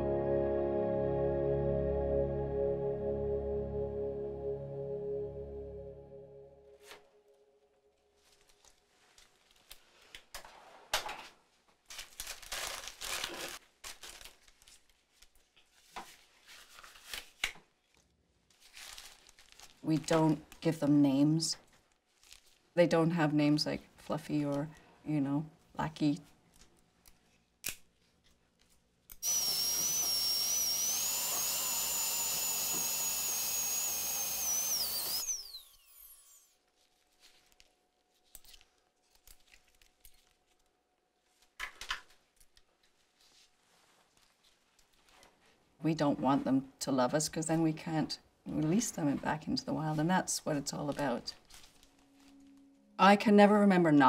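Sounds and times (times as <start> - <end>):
paper drapes crinkling: 8.2 - 10.8, 11.5 - 20.7, 21.6 - 22.8, 42.8 - 45.7, 50.8 - 52.6
rotary drill whining: 29.2 - 36.5.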